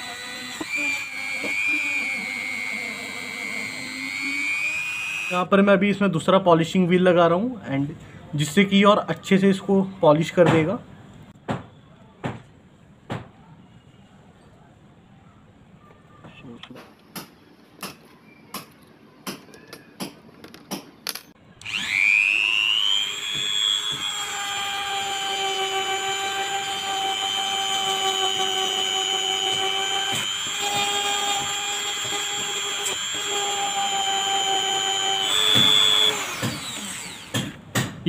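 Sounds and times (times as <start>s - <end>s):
rotary tool whining: 0.0s - 5.4s, 21.6s - 37.4s.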